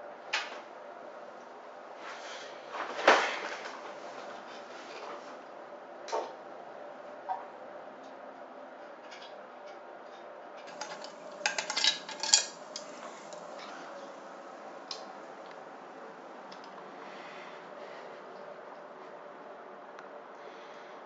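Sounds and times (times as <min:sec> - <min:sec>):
hard objects clattering: 0:10.7 - 0:14.2.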